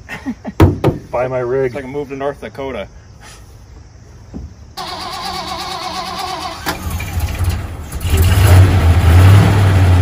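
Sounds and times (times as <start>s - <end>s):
engine starter whine: 4.8s - 9.8s
engine running and revving: 6.7s - 10.0s.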